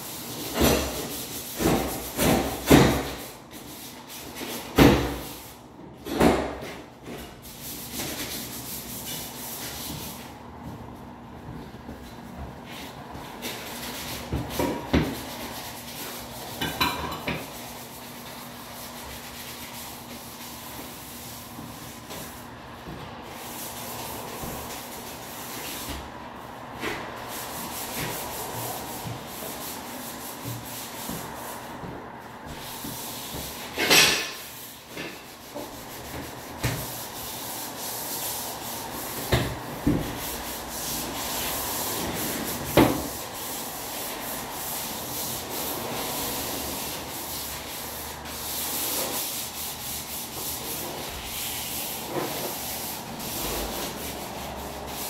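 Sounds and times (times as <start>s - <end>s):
scraping and rubbing: 39.9s - 55.0s.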